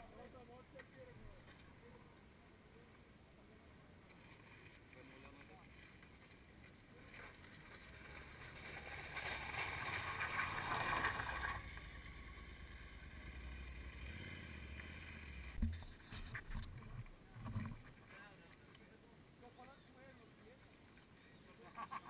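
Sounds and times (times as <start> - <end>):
motorcycle passing on gravel: 7.2 - 16.1.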